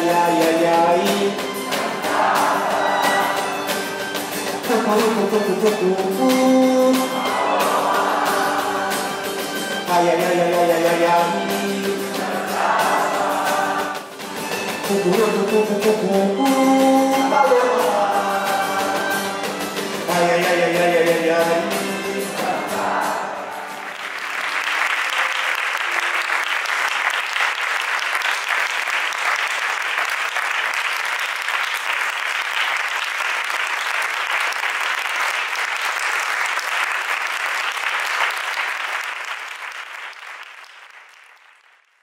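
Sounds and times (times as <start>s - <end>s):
live band final notes: 0.0s - 27.4s
audience applauding: 1.1s - 5.2s, 6.9s - 14.7s, 23.6s - 42.0s.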